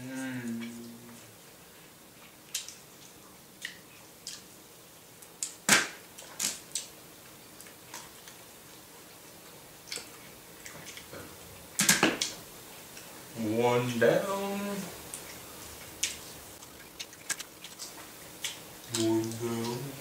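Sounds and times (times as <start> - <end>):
chicken being bitten and chewed: 15.2 - 18.7.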